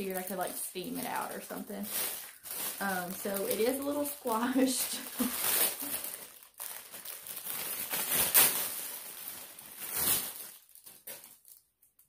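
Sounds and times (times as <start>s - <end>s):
packaging crinkling and rustling: 0.0s - 12.0s.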